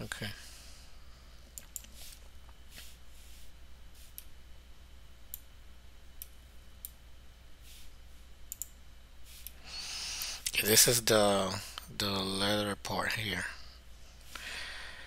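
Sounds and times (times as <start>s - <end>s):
faint low hum: 0.0s - 15.0s
computer mouse clicking: 1.5s - 2.9s, 8.5s - 8.8s.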